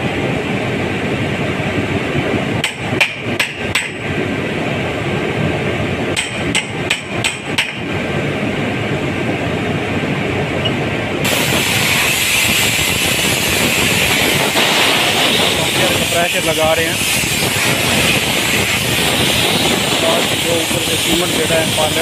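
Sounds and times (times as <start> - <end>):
hammer striking metal bar: 2.6 - 4.1, 6.1 - 7.9
plant machinery noise: 6.5 - 22.0
loud steady hiss: 11.2 - 22.0.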